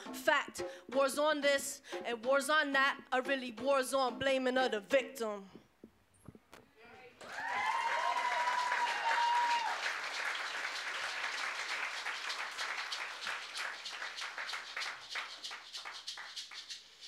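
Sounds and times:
high held cheer: 0:07.2 - 0:13.6
audience applauding: 0:07.2 - 0:16.6.

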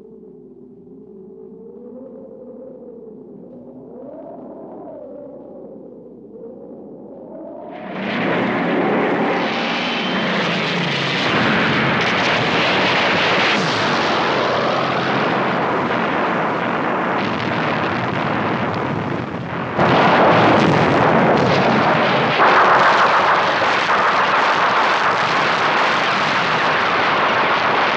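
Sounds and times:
falling whines: 0:07.6 - 0:18.1.

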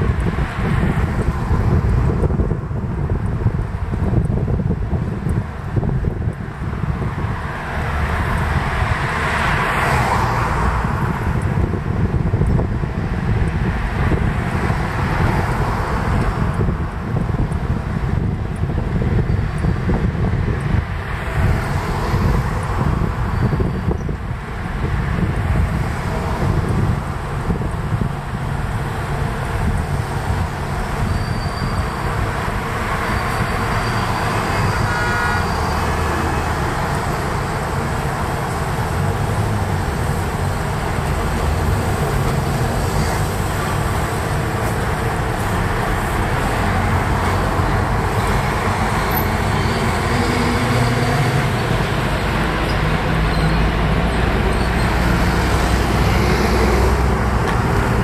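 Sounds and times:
street traffic: 0:00.0 - 0:58.0
vehicle horn: 0:33.9 - 0:35.8.

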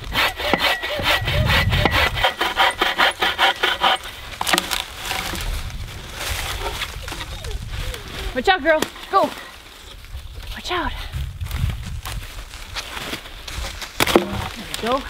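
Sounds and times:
bow saw cutting log: 0:00.0 - 0:05.5
rustling: 0:03.6 - 0:10.6, 0:11.2 - 0:15.0.

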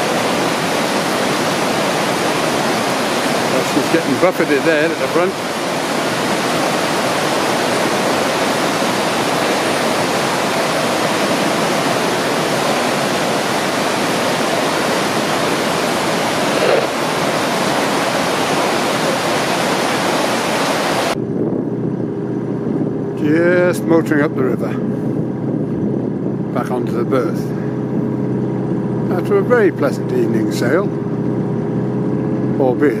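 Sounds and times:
water rushing into a lock: 0:00.0 - 0:21.2
boat engine humming: 0:00.0 - 0:33.0.

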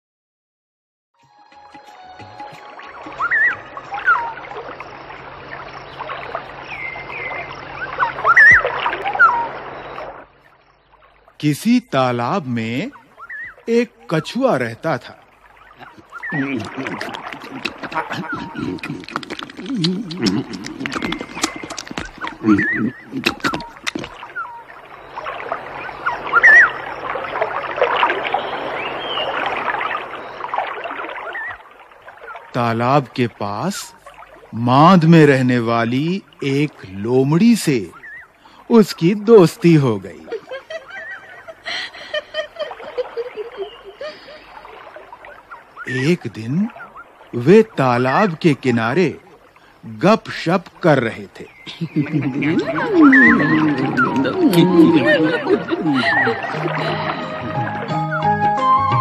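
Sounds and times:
rising and falling chirps: 0:01.2 - 0:04.7, 0:51.9 - 0:59.0
high warbling whistles: 0:01.2 - 0:04.9, 0:05.9 - 0:10.2, 0:15.6 - 0:17.4, 0:20.8 - 0:31.6, 0:51.8 - 0:59.0
running water: 0:01.2 - 0:59.0.

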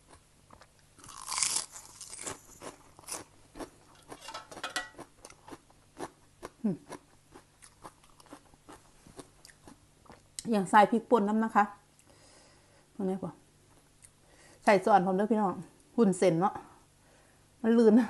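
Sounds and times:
crunchy vegetable chewing: 0:00.0 - 0:10.4.

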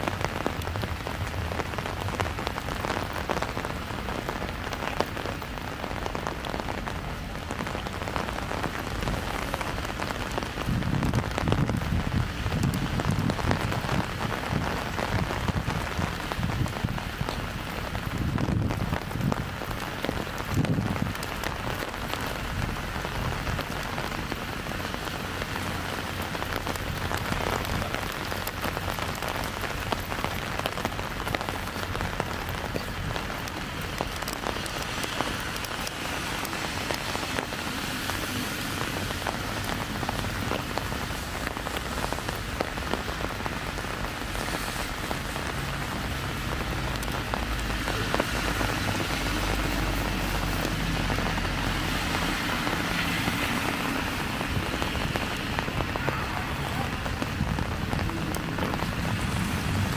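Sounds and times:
rain pattering on an umbrella: 0:00.0 - 0:59.9
low rumbles: 0:54.2 - 0:59.9.

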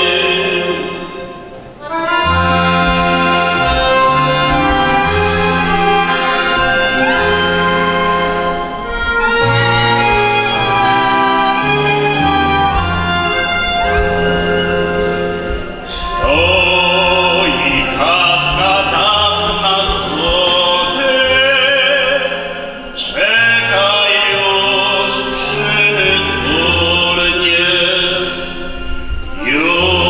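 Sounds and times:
man singing with vibrato: 0:00.0 - 0:08.1, 0:15.8 - 0:30.0
accordion: 0:00.0 - 0:30.0
violin: 0:00.0 - 0:30.0.

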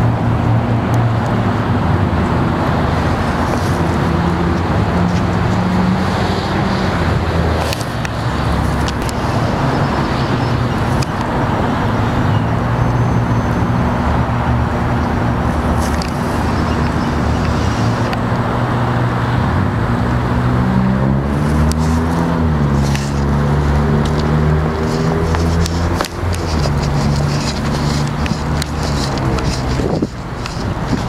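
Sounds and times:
diesel engine running: 0:00.0 - 0:31.0.

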